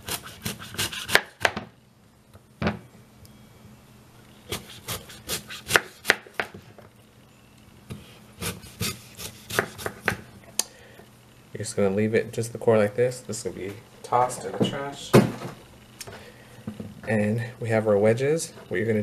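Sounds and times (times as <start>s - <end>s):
knife cutting apple on cutting board: 0.0s - 1.6s, 4.5s - 6.5s, 7.9s - 10.2s.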